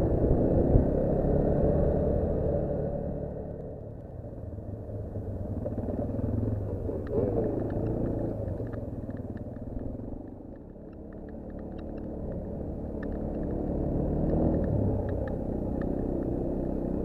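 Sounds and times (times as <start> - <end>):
light clicks and rattles: 6.8 - 16.3
off-road vehicle engine revving: 12.8 - 17.0.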